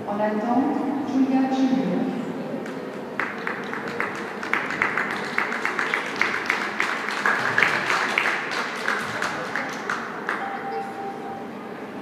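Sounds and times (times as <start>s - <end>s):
applause in large hall: 2.6s - 10.6s.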